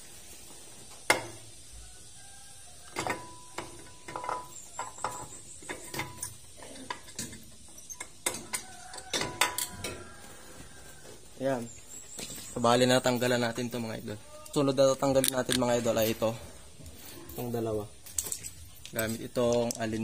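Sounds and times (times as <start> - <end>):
hand tools clicking on metal parts: 2.9 - 10.0, 14.5 - 16.3, 16.9 - 20.0.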